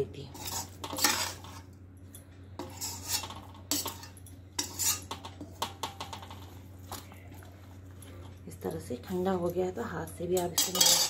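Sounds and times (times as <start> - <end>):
metal spoon scraping and clinking: 0.0 - 6.6, 9.4 - 11.0.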